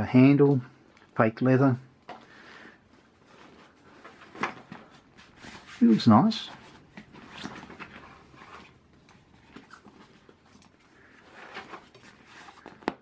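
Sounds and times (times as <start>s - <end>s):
backpack rustling and scraping: 3.0s - 13.0s.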